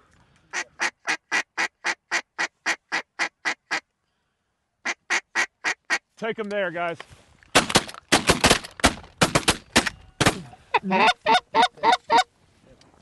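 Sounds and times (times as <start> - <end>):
duck call quacks: 0.5 - 3.8, 4.8 - 6.0, 10.7 - 12.3.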